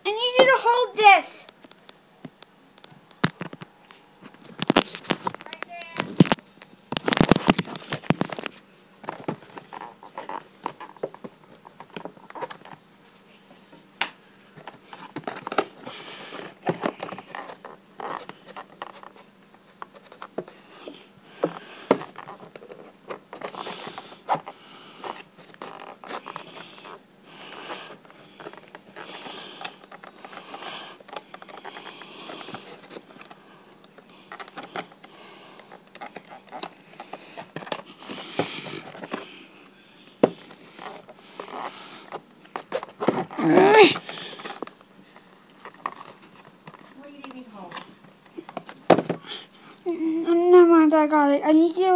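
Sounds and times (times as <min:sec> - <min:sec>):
plastic packaging crinkling: 0:04.4 - 0:11.1.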